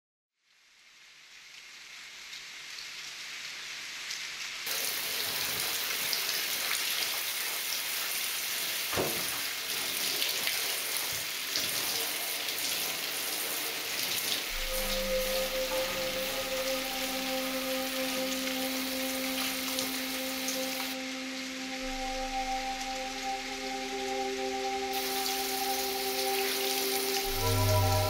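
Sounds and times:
knock: 0:09.0 - 0:09.3.

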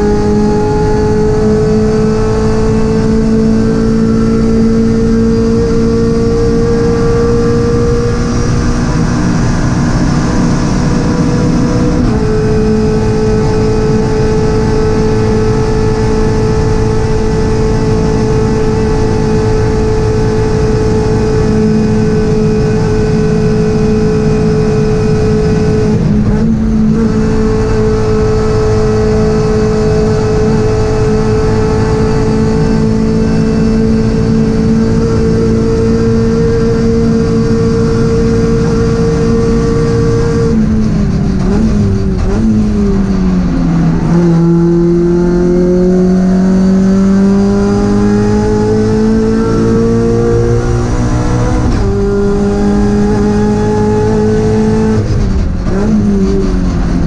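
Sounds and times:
race car engine at high revs: 0:00.0 - 0:57.0
wind noise: 0:00.0 - 0:57.0.

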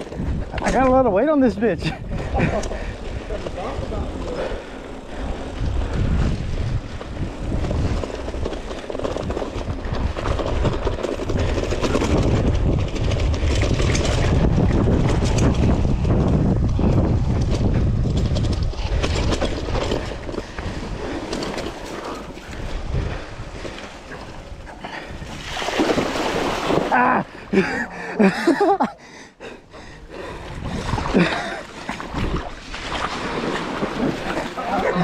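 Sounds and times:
bike rattling over bumps: 0:00.0 - 0:28.8
wind rumble on microphone: 0:00.0 - 0:28.8, 0:29.8 - 0:35.0
bike tyres crunching over dirt: 0:02.2 - 0:27.7.

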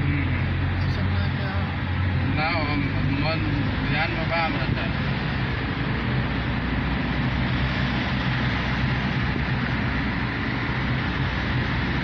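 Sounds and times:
car engine and road noise: 0:00.0 - 0:12.0.

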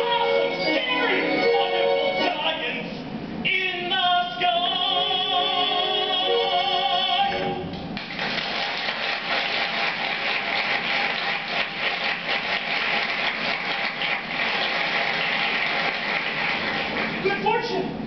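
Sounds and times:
musical accompaniment: 0:00.0 - 0:02.8, 0:04.5 - 0:07.8
man singing with vibrato: 0:00.0 - 0:07.7
audience applause: 0:08.0 - 0:17.6.

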